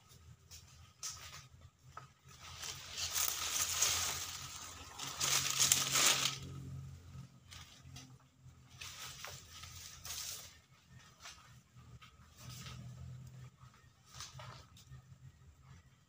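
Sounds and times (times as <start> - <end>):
dry palm fronds rustling: 0.6 - 11.6.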